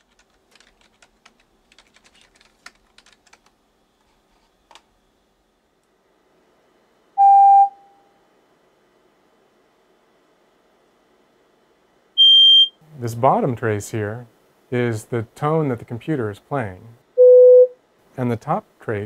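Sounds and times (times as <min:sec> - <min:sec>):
keyboard typing: 0:00.0 - 0:04.9
pure tone: 0:07.2 - 0:08.1, 0:17.2 - 0:17.8.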